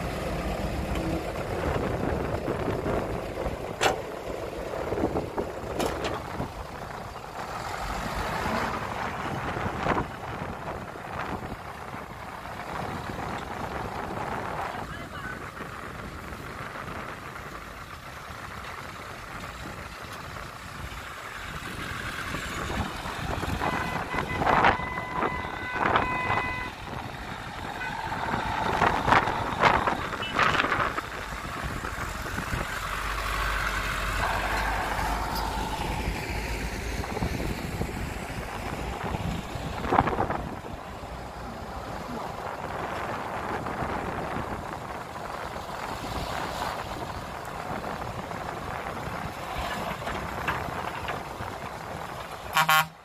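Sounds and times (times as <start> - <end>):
dump truck engines running: 0.0 - 53.0
truck horn tooting: 23.5 - 26.8, 27.7 - 28.9, 30.1 - 30.8, 52.5 - 53.0.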